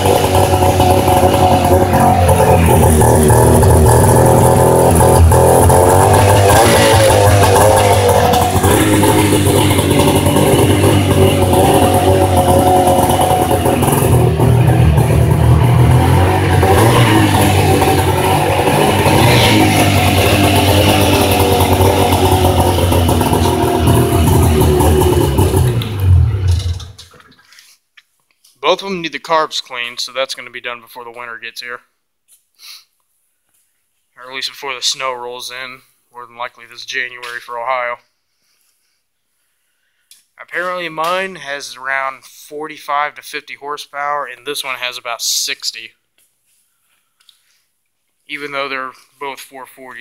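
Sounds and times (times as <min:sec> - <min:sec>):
snowmobile engine running: 0:00.0 - 0:27.0.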